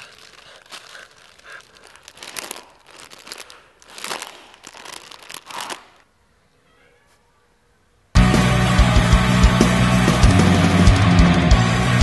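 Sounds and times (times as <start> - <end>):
crisp packet crinkling: 0.0 - 6.1
crunching crisps: 0.0 - 6.1.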